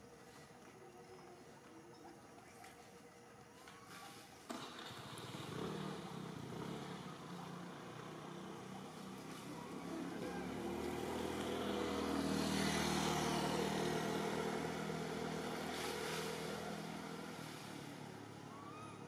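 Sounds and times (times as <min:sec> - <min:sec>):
vehicle engine passing: 0:04.5 - 0:19.0.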